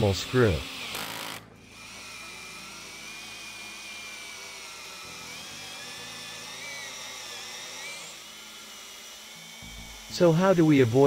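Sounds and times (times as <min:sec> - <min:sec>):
power drill motor whine: 0:00.0 - 0:11.0.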